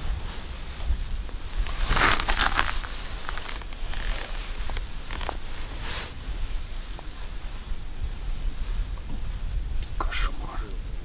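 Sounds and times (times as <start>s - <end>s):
wind noise on microphone: 0.0s - 11.0s
jacket rustling: 1.5s - 6.1s.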